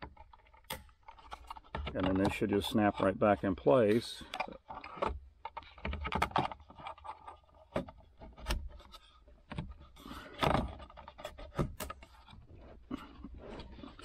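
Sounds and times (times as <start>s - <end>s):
plastic clicks and knocks: 0.0s - 14.0s
plastic scraping: 0.0s - 14.0s.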